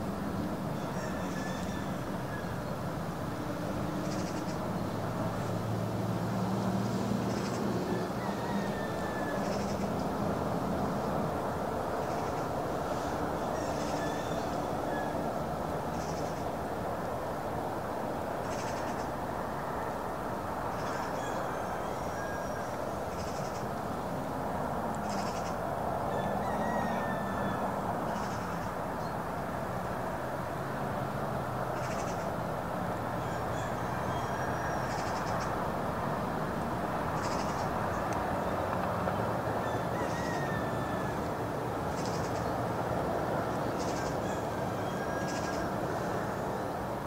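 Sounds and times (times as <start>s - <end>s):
steady rushing outdoor noise: 0.0s - 47.0s
high bird calls: 43.5s - 46.4s.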